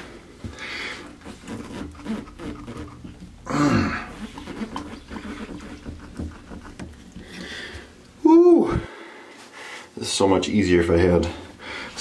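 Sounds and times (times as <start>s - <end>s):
handling knocks and rubbing: 0.4s - 8.2s
man grunting with effort: 3.4s - 4.1s, 8.2s - 8.9s.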